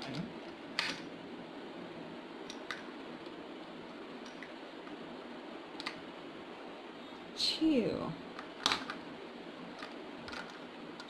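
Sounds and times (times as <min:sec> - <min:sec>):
steady low hum: 0:00.0 - 0:11.0
plastic toys clicking on table: 0:09.8 - 0:11.0.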